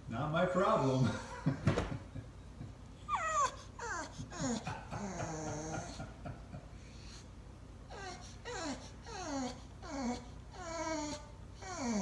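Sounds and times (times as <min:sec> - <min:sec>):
dog whining: 0:03.0 - 0:06.0, 0:07.9 - 0:12.0.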